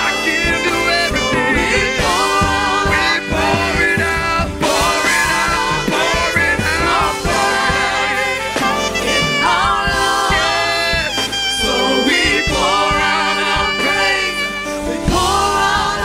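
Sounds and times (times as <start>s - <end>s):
keyboard: 0.0s - 16.0s
singers singing together: 0.0s - 16.0s
steady drum beat: 0.0s - 16.0s.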